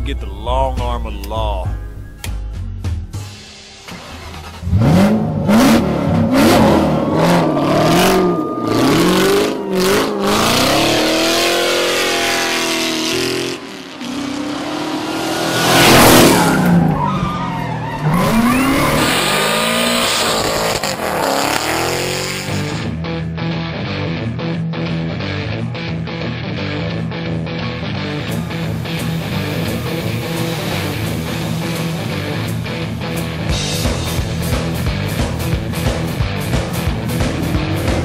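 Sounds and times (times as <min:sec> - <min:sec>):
car engine revving: 0:03.8 - 0:23.2, 0:27.2 - 0:38.0
tyres squealing and skidding: 0:06.0 - 0:22.8, 0:28.5 - 0:32.8.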